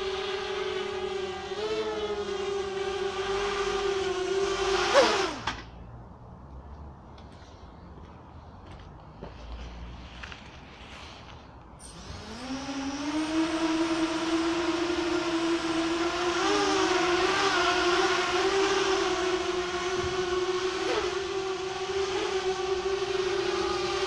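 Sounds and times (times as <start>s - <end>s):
drone motors whining: 0.0s - 5.8s, 11.8s - 24.0s.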